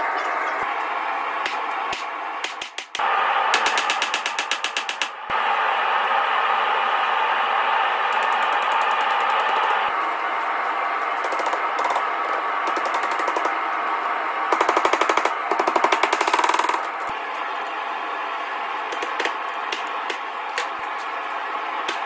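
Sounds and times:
rapid hammer strikes on anvil: 1.4 - 5.2, 11.2 - 13.6, 14.5 - 17.1, 18.9 - 20.8.

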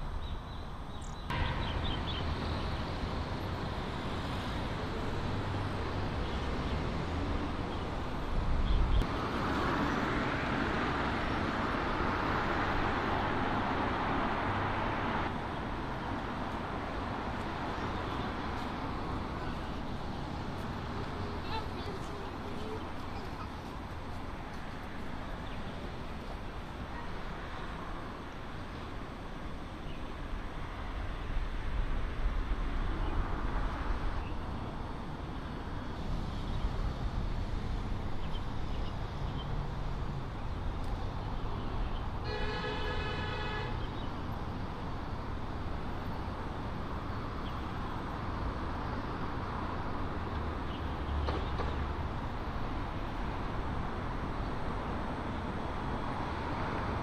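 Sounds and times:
city traffic rumble: 0.0 - 57.0
vehicle horn honking: 42.2 - 43.9.

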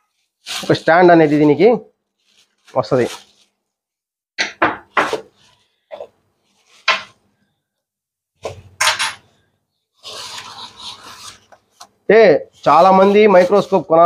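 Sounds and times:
plastic packing wrap crinkling: 0.0 - 4.0, 6.4 - 7.2, 10.0 - 11.9, 12.5 - 14.0.

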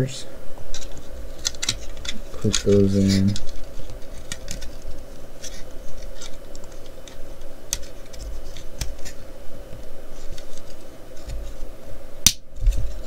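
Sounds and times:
plastic parts clicking and scraping: 0.7 - 9.2.

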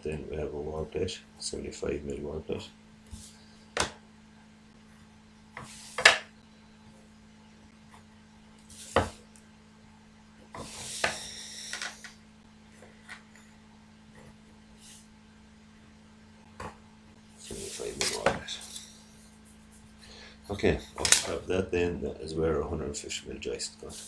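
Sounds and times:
set square scraping across paper: 10.6 - 12.1.

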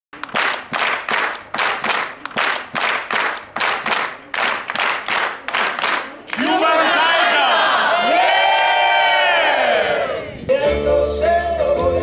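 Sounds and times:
crowd clapping in rhythm: 0.1 - 7.8.

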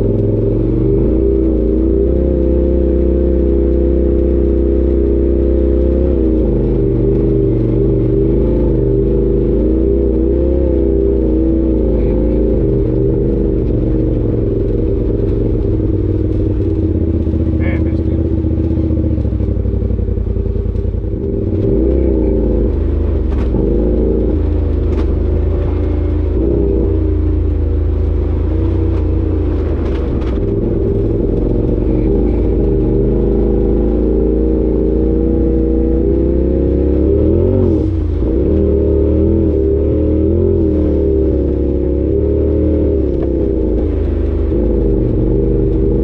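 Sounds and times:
utility vehicle engine running: 0.0 - 46.0
knocks and rattles from vehicle: 12.1 - 26.8, 28.3 - 34.7.

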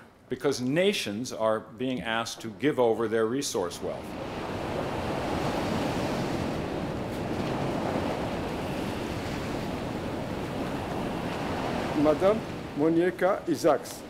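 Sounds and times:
ocean waves breaking on shore: 3.8 - 14.0.

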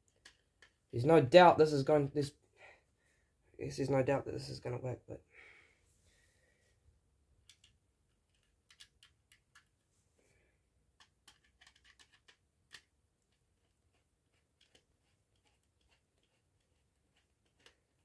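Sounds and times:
faint clicks of small parts: 0.0 - 1.0, 7.4 - 9.9, 10.9 - 18.0.

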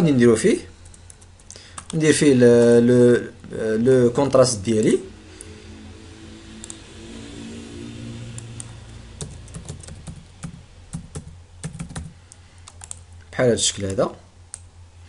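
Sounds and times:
steady low hum: 0.0 - 15.0
typing on computer keyboard: 9.2 - 13.0.

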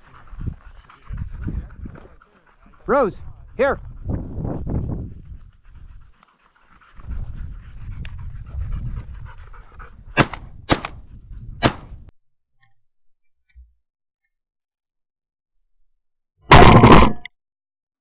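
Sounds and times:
dog panting: 0.0 - 11.6
shotgun shots: 10.2 - 11.0, 11.6 - 11.9.

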